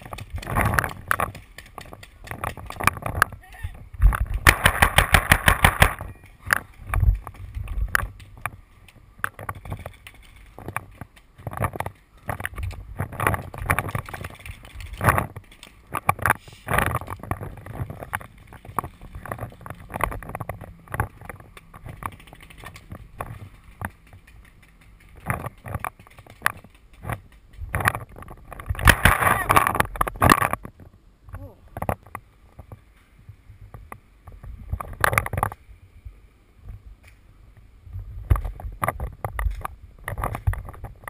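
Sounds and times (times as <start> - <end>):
paintball marker rapid shots: 4.4 - 6.0.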